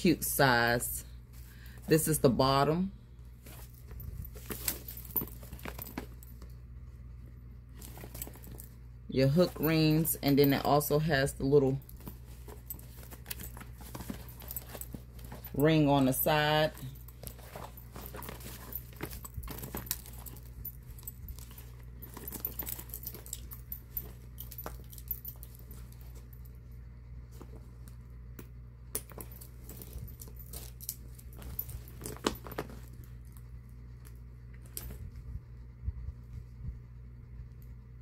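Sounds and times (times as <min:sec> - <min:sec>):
low steady hum: 0:00.0 - 0:38.0
fabric rustling: 0:00.3 - 0:07.0, 0:07.7 - 0:26.6, 0:29.2 - 0:33.6
metal clasps clicking and jingling: 0:03.5 - 0:06.4, 0:07.8 - 0:26.3, 0:29.0 - 0:33.0.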